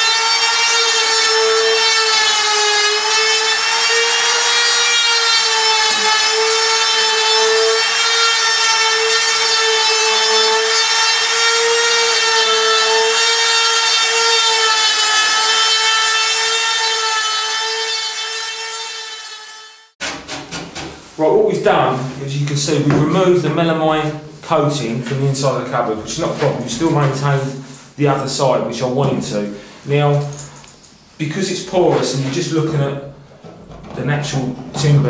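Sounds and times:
router cutting a groove: 0:00.0 - 0:19.8.

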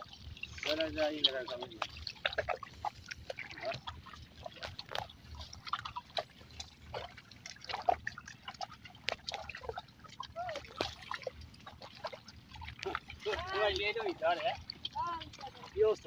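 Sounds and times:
mud and water splashing: 0:00.0 - 0:16.0.

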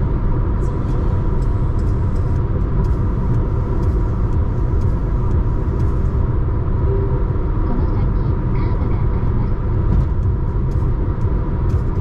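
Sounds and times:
car driving at speed: 0:00.0 - 0:12.0.

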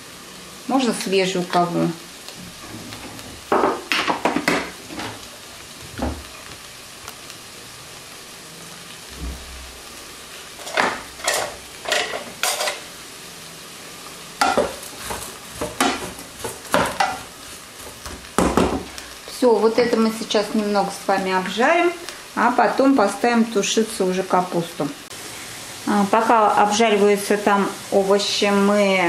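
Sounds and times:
vegetables sizzling in oil: 0:00.0 - 0:29.0
wooden spatula scraping and knocking: 0:14.4 - 0:18.9.

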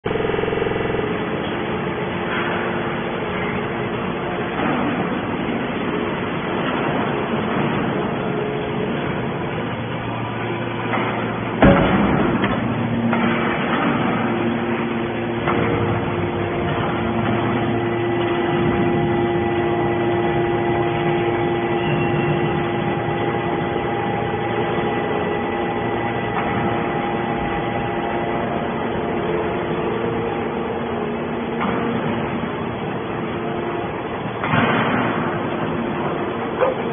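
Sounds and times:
hydraulic machine hum: 0:00.0 - 0:36.9
loud metal bang: 0:10.0 - 0:32.8, 0:34.3 - 0:36.2.

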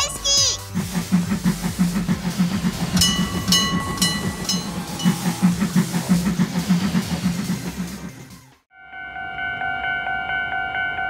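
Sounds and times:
steam locomotive chuffing: 0:00.0 - 0:08.7.

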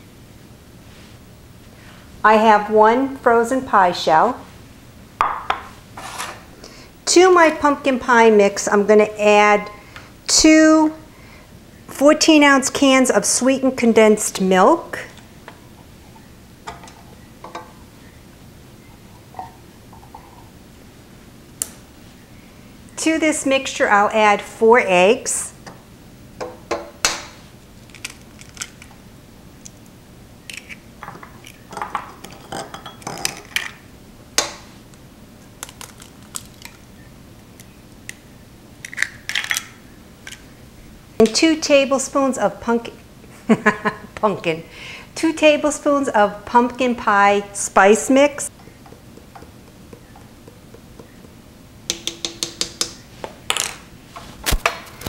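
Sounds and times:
eggshell crunching: 0:27.8 - 0:29.0, 0:35.4 - 0:38.2, 0:48.6 - 0:53.6
eggs tapping against metal bowl: 0:48.5 - 0:53.1.

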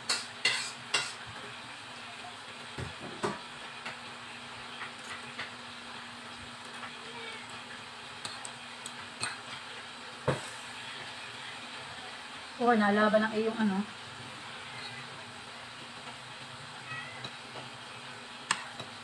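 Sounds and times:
cutlery clinking on a plate: 0:00.1 - 0:01.2.

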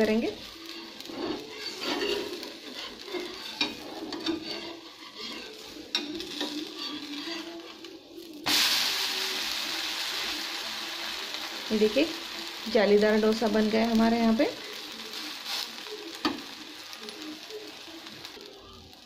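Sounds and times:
spatula scraping on a pan: 0:00.0 - 0:08.3
food sizzling on a hot pan: 0:00.0 - 0:19.0.

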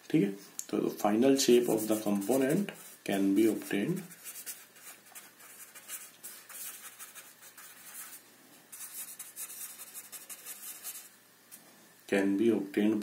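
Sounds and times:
pen scratching on paper: 0:01.5 - 0:11.1.

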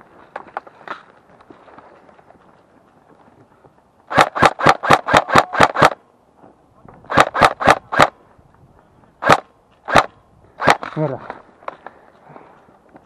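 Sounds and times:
airsoft rifle shots: 0:04.1 - 0:06.0, 0:07.1 - 0:08.2, 0:09.2 - 0:11.0.

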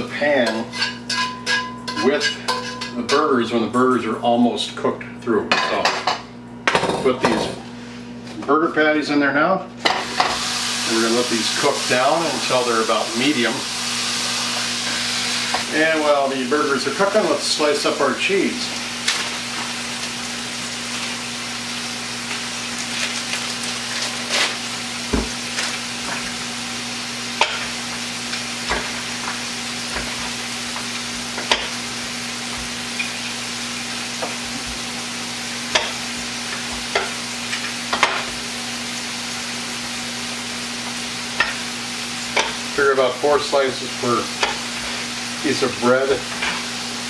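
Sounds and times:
burger patties sizzling in a pan: 0:09.8 - 0:47.0.

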